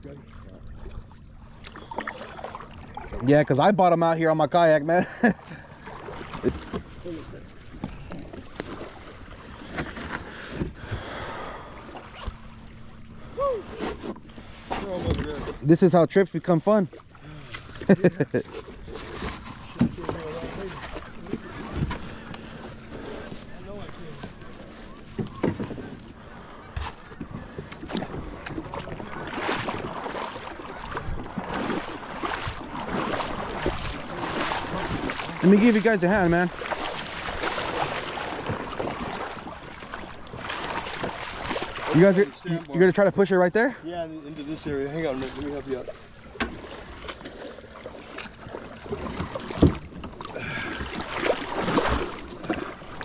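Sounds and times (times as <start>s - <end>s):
kayak paddle splashing water: 0.0s - 3.7s, 4.6s - 53.0s
knocks and scrapes on boat hull: 13.7s - 15.6s, 18.4s - 26.0s, 46.4s - 47.4s, 48.1s - 50.3s.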